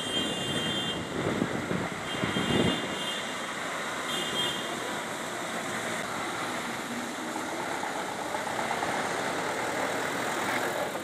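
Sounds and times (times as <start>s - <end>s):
cars idling in slow traffic: 3.3s - 11.0s.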